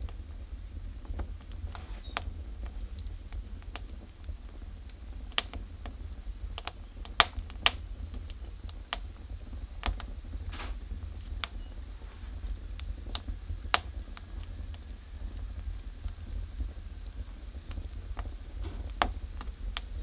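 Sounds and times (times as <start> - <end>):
logs crackling in a stove: 0.0 - 20.0.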